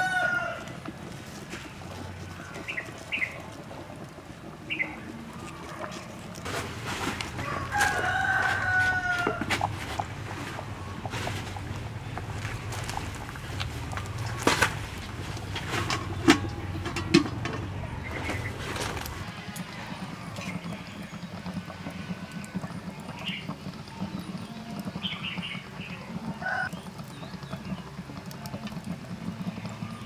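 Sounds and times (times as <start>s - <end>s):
wood fire humming and crackling: 0.0s - 30.0s
metal lid clanking on wok: 15.5s - 18.4s.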